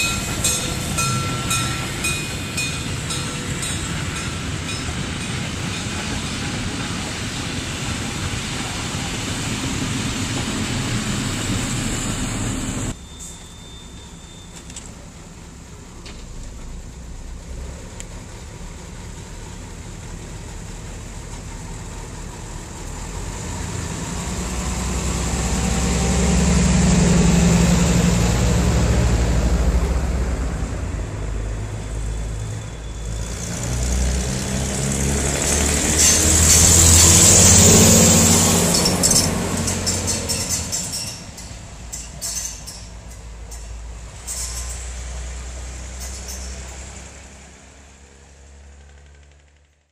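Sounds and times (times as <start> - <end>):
wheel and rail hiss: 0.0 - 16.8, 32.0 - 49.1
railbus diesel engines running: 0.0 - 49.9.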